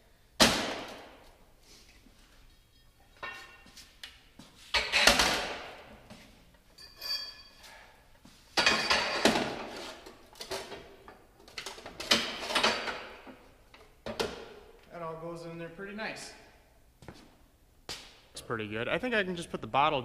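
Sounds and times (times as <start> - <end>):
metal tools clanking and scraping: 2.4 - 3.9, 6.7 - 7.9, 8.6 - 10.8.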